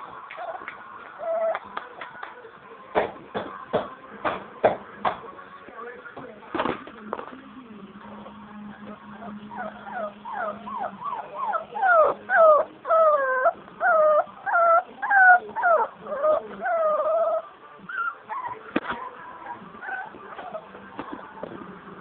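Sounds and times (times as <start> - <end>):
puppy whimpering: 0.3 - 1.8, 8.8 - 20.9.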